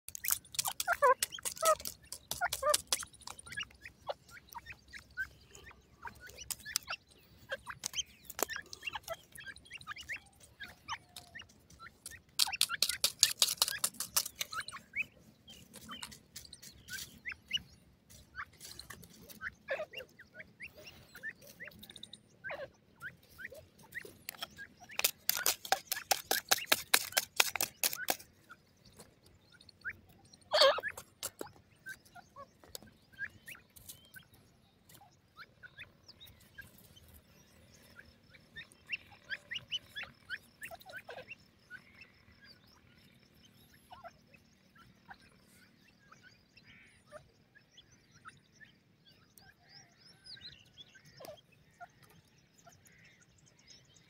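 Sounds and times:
birds pecking and scratching gravel: 0.1 - 47.9, 48.8 - 53.1
soft short bird chirps: 0.1 - 53.3.

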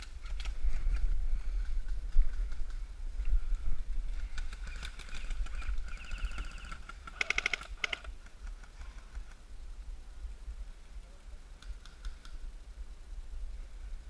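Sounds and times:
wind rumble: 0.0 - 11.5
airsoft rifle clicking shots: 7.1 - 8.1.

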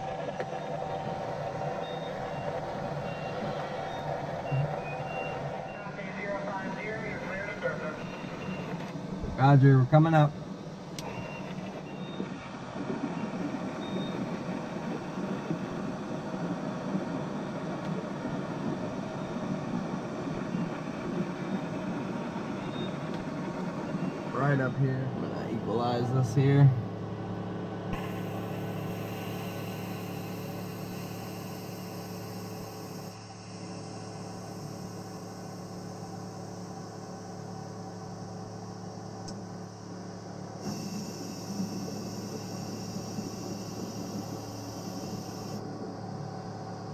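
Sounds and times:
machinery whirring hum: 0.0 - 46.9
faint high beep: 1.8 - 6.1, 7.3 - 8.7, 11.0 - 12.3, 22.6 - 23.0
fan-like hiss: 27.3 - 46.9.

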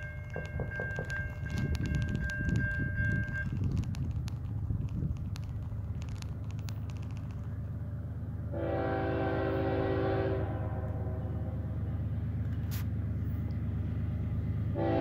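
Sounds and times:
diesel locomotive rumbling: 0.0 - 15.0
locomotive air horn: 8.5 - 11.8, 14.7 - 15.0.

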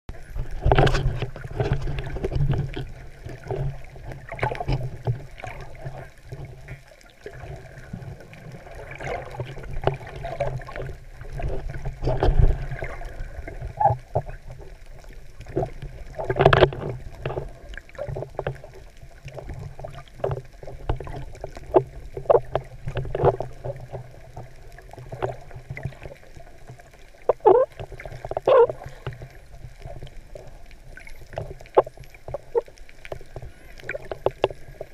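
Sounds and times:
water sloshing and gurgling: 0.1 - 34.9
knocks and splashes: 0.4 - 5.9, 8.8 - 14.3.

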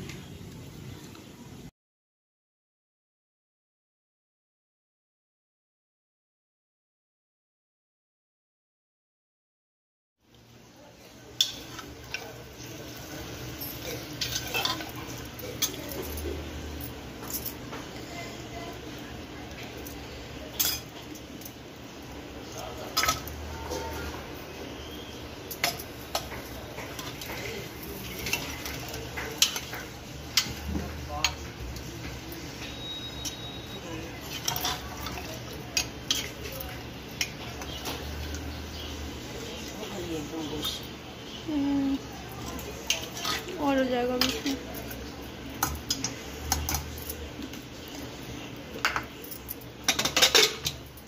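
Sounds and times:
utensils clinking on metal pot: 11.3 - 18.0, 19.5 - 21.6, 22.5 - 24.2, 25.4 - 38.9, 42.4 - 48.1, 48.7 - 51.0
metal spoon scraping a pot: 13.0 - 16.5, 25.5 - 30.6, 32.6 - 36.6, 42.9 - 45.0, 49.9 - 50.8
pot lid clattering: 49.9 - 50.8.

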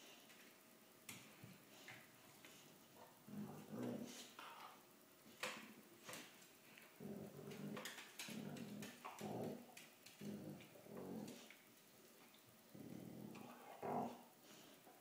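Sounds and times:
dog growling in play: 3.0 - 4.8, 6.9 - 11.5, 12.7 - 14.6.

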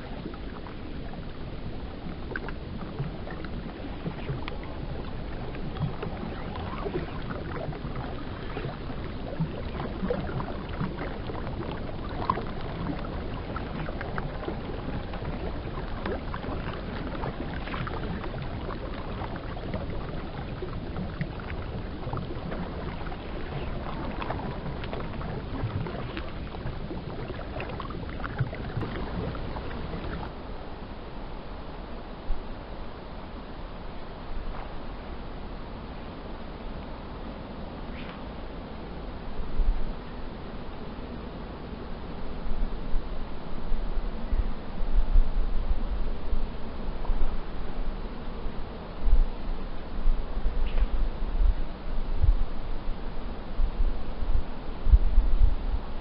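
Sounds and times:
small water splashes: 0.0 - 30.4
river water lapping and gurgling: 0.0 - 56.0.

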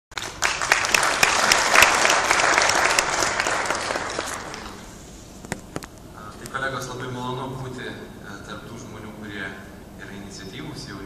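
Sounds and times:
audience applauding: 0.1 - 4.9.

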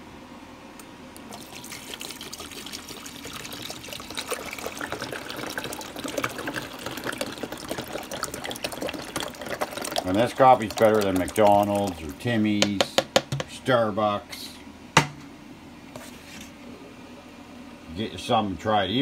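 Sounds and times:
water pouring from plastic bottle: 1.3 - 12.0.

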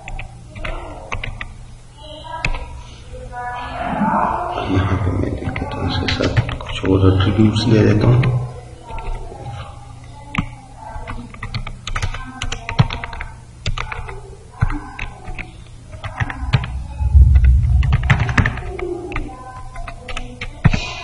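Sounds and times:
loud low rumble: 16.4 - 19.0.

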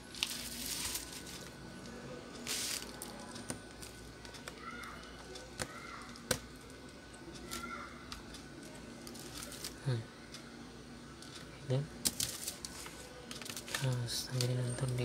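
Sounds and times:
hands rustling on bubble wrap: 0.0 - 1.6.

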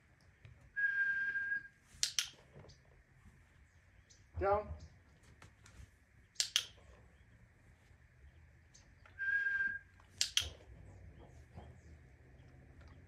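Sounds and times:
short whistled tone: 0.8 - 1.8, 9.2 - 9.9.

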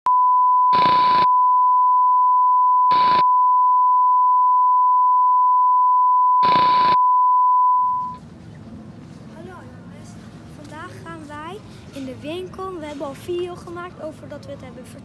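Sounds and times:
test card tone: 0.1 - 8.2.

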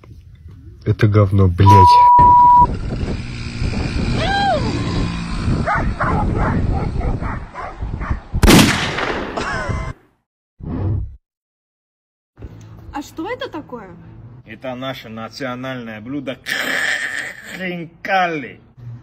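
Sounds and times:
person shouting: 4.2 - 4.8
dog barking and yapping: 5.6 - 8.2.

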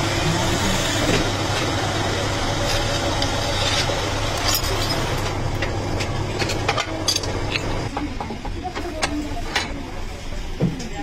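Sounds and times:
lathe motor humming: 0.0 - 6.4
steel parts clinking: 3.5 - 5.3, 6.4 - 7.8.

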